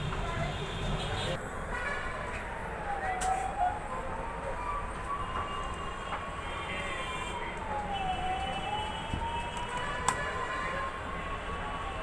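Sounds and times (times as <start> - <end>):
siren wailing: 2.5 - 12.0.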